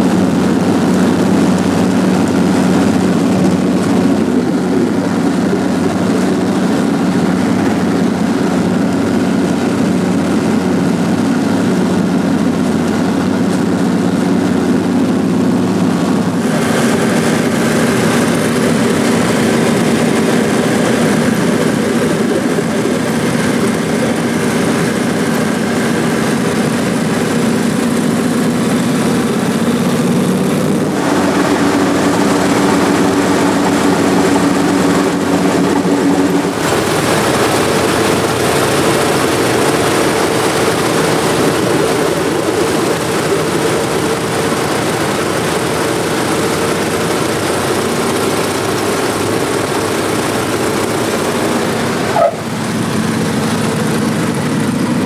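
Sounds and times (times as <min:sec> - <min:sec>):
propeller engines droning: 0:00.0 - 0:55.0.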